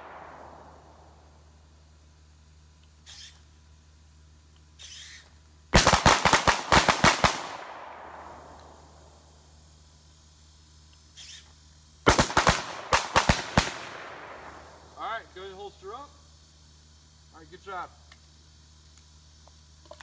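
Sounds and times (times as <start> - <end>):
rapid pistol fire volleys: 0.0 - 1.3, 4.8 - 9.2, 12.0 - 15.0.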